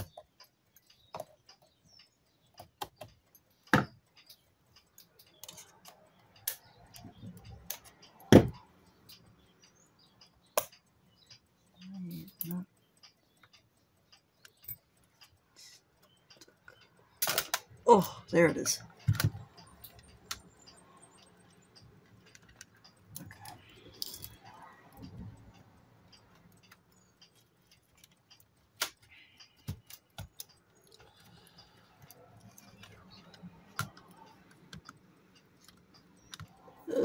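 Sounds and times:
camera parts clicking and clattering: 17.2 - 17.6.

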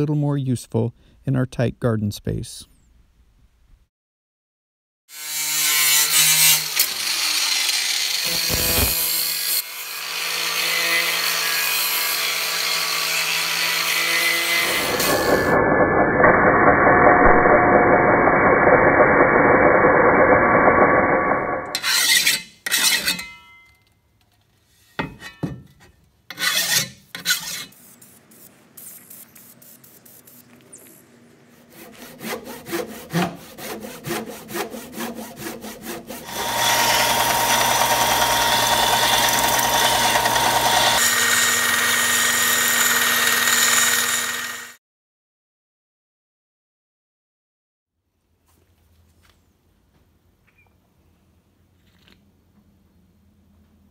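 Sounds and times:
angle grinder cutting steel: 5.1 - 23.4, 26.3 - 27.7, 31.7 - 44.8
belt sander humming: 31.6 - 44.7.

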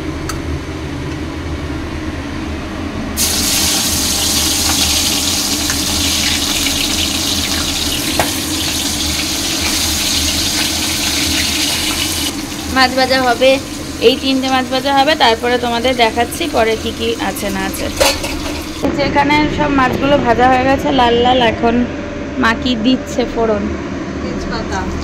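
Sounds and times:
fish sizzling in hot oil: 3.2 - 18.8.

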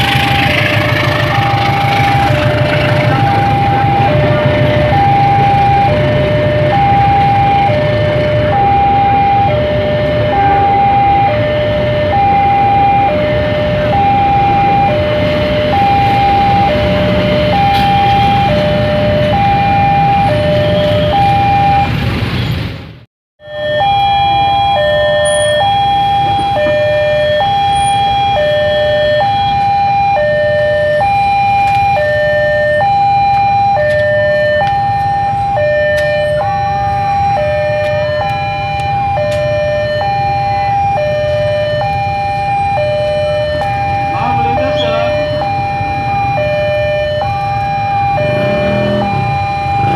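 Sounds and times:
passing train rumble: 0.0 - 23.0, 40.7 - 49.9
level crossing two-tone alarm: 1.2 - 22.0, 23.4 - 49.9.

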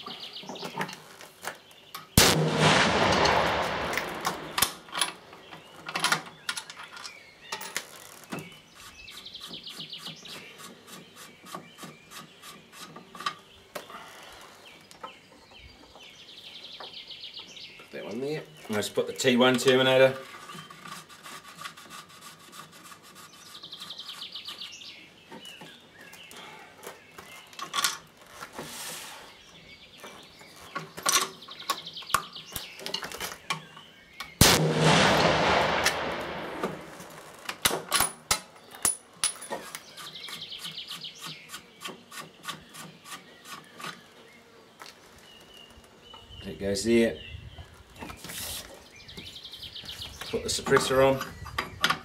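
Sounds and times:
birds chirping: 0.0 - 21.0, 23.2 - 37.6, 38.4 - 52.0
rifle shot: 2.2 - 5.2, 34.4 - 37.2.

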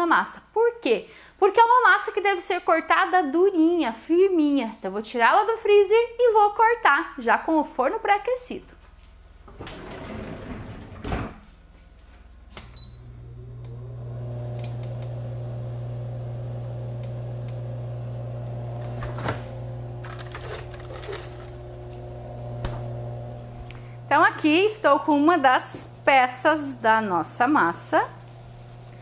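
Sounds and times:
oven fan motor humming: 12.7 - 29.0
oven switch clicks: 14.6 - 15.3
handling knocks and rustles: 18.8 - 23.1.

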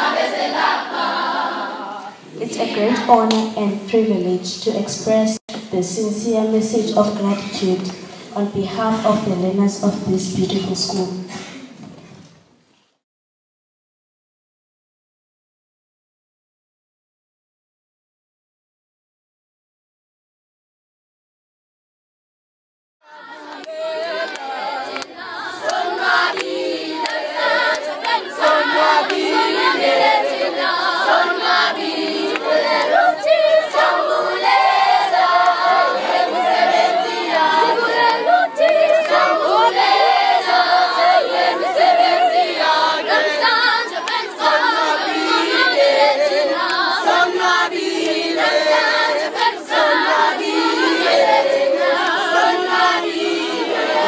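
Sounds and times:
children singing together: 0.0 - 3.4, 23.1 - 54.0.

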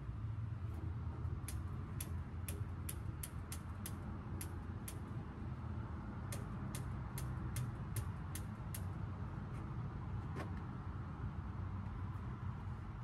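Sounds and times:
grill igniter clicking: 1.4 - 5.1.

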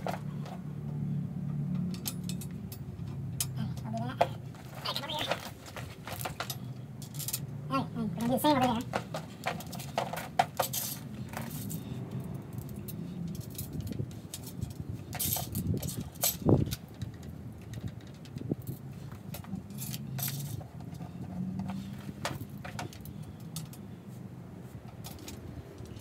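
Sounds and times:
metal screws clinking: 4.7 - 7.4, 8.8 - 23.8.

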